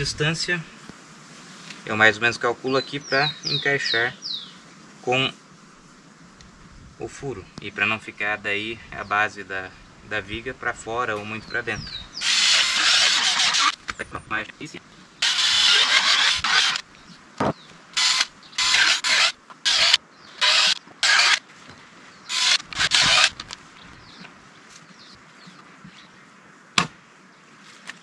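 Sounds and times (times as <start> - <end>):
drill boring into wood: 12.2 - 13.8, 15.2 - 16.8, 18.0 - 21.4, 22.3 - 23.5.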